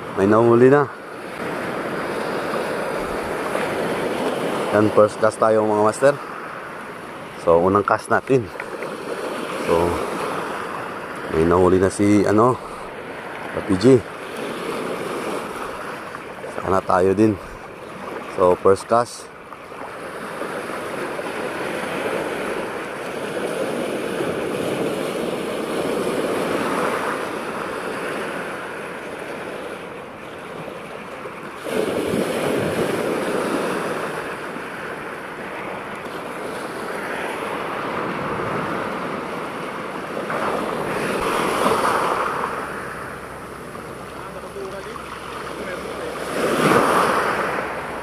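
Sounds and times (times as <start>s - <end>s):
surf breaking: 30.5s - 48.0s.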